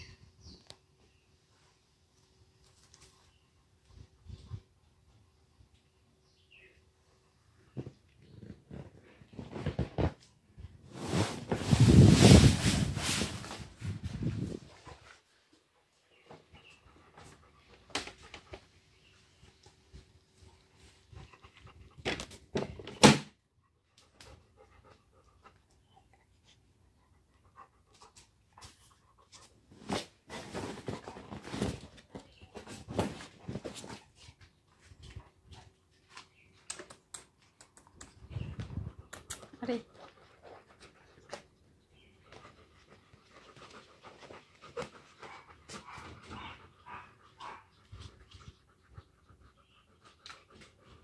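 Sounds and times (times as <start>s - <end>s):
dog panting: 42.3s - 51.0s.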